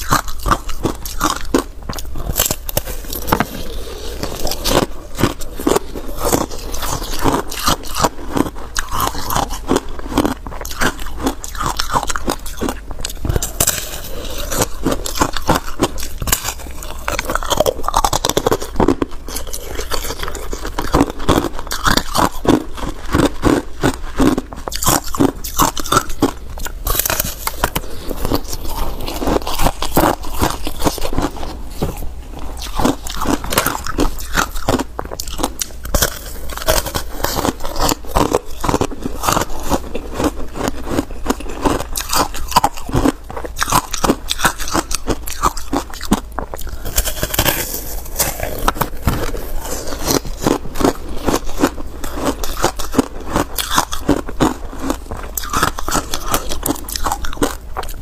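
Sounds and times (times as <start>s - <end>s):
ice crunching between teeth: 0.0s - 58.0s.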